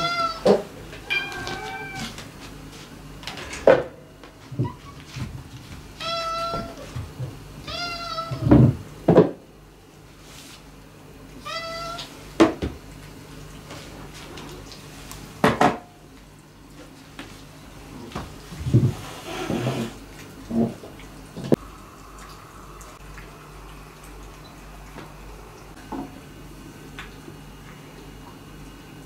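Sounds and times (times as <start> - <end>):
cat meowing: 0.0 - 2.2, 6.0 - 6.9, 7.6 - 8.5, 11.4 - 12.1.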